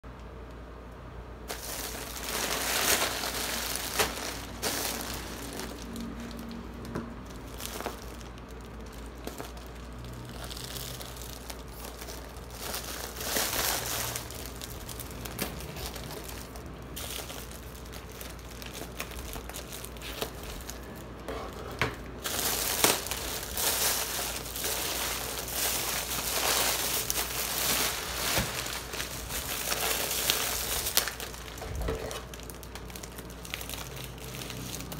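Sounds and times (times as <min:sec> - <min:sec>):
bubble wrap crackling: 0:01.4 - 0:34.9
plastic bag crinkling: 0:01.4 - 0:34.9
scissors cutting plastic: 0:17.0 - 0:32.9.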